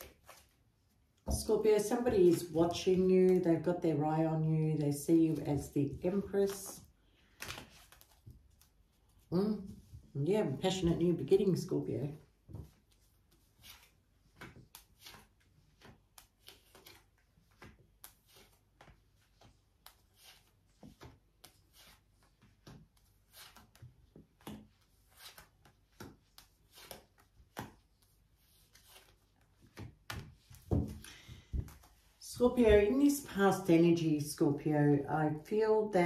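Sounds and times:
cards flicking and tapping on cloth: 12.5 - 32.0.

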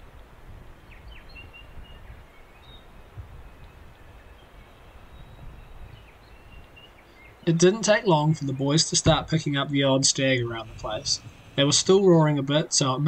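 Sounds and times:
wind rumble on microphone: 0.0 - 7.4
small birds chirping: 0.0 - 12.8.

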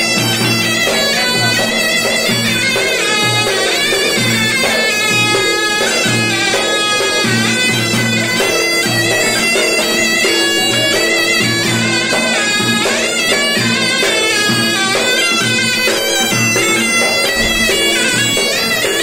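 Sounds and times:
shawm playing folk melody: 0.0 - 19.0
bass drum beating: 16.3 - 19.0.

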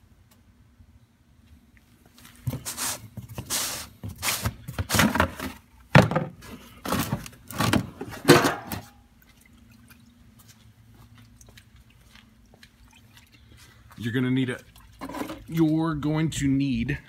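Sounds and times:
plastic pan scraping and knocking: 4.7 - 8.8
oil sloshing in a pan: 8.8 - 15.7.

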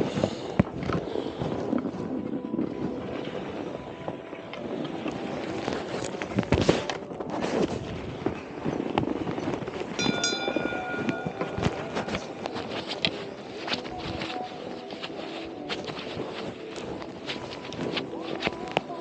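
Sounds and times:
wind noise on camera: 0.0 - 19.0
skis scraping over snow: 4.6 - 19.0
brief ringing tone: 10.0 - 12.7
hand knocking hanging ball: 10.0 - 13.0.

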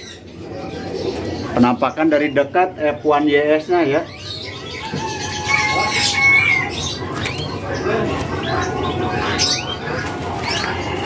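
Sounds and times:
murmur of voices: 0.0 - 11.0
songbirds whistling and chirping: 3.7 - 11.0.

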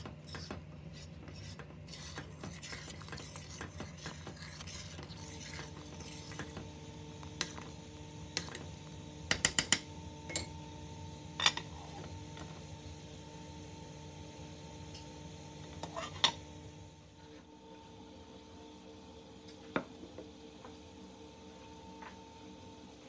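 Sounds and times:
metal spoon stirring thick puree: 0.3 - 8.7.

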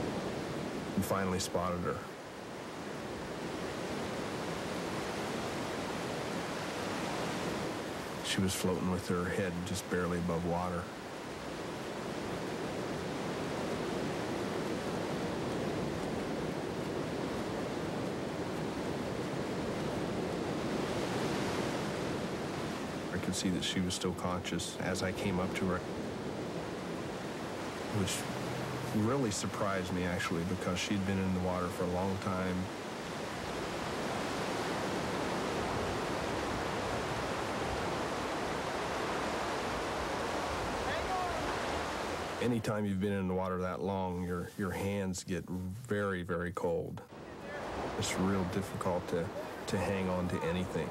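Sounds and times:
river rapids rushing: 26.9 - 42.5, 47.1 - 50.9.

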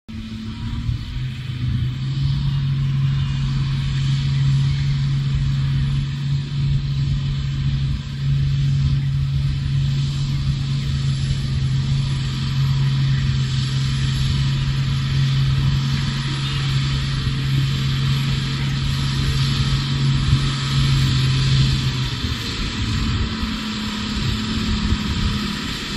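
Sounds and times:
diesel truck engine droning: 0.1 - 25.9.

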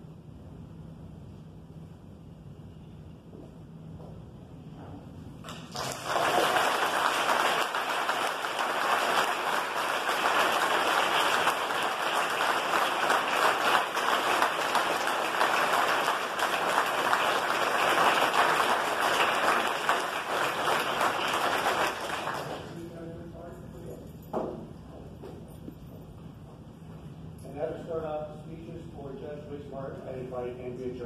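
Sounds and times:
crowd applauding: 5.5 - 22.9.

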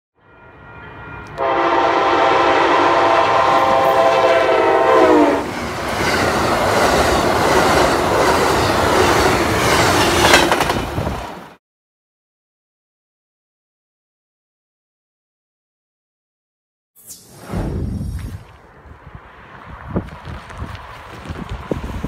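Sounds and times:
train horn chord: 0.2 - 5.5
train wheels clattering on rails: 5.5 - 11.4.

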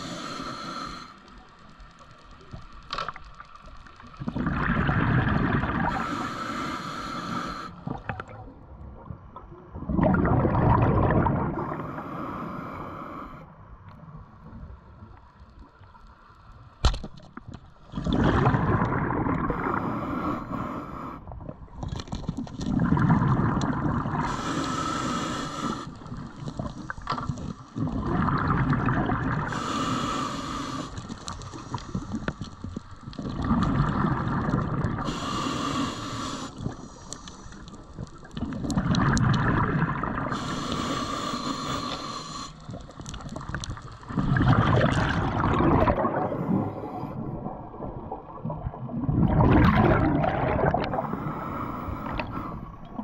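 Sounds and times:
regulator hiss on inhale: 0.0 - 2.0, 5.8 - 8.0, 11.6 - 13.6, 19.5 - 21.3, 24.1 - 27.8, 29.4 - 33.0, 35.0 - 38.1, 40.2 - 43.1, 50.9 - 52.8
exhaled bubbles rumbling: 4.0 - 6.2, 7.8 - 12.0, 17.4 - 20.2, 21.3 - 24.5, 26.0 - 29.8, 31.0 - 35.5, 37.7 - 40.9, 42.6 - 53.0.

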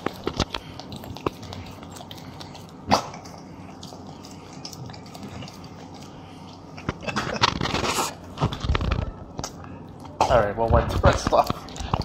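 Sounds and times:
dog licking wetly: 0.0 - 7.0.

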